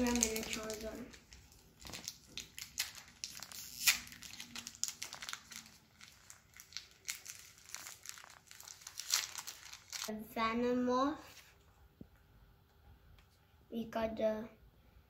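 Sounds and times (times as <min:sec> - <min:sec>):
foil wrapper crinkling and tearing: 0:00.0 - 0:10.1.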